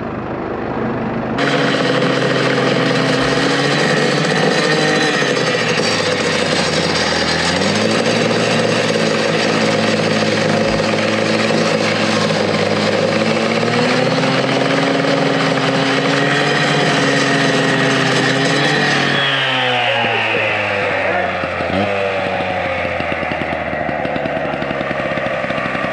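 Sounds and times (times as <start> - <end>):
petrol disc cutter cutting concrete: 1.0 - 25.9.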